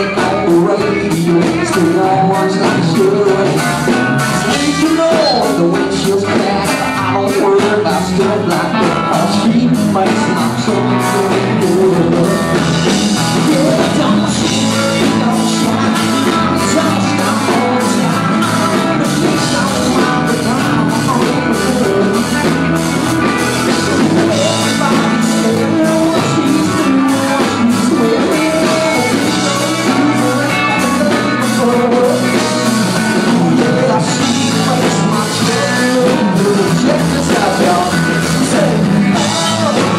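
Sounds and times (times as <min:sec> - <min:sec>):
country rock band playing: 0:00.0 - 0:39.9
drum beat: 0:00.0 - 0:39.9
electric guitar: 0:00.0 - 0:39.9
person singing: 0:00.0 - 0:39.9.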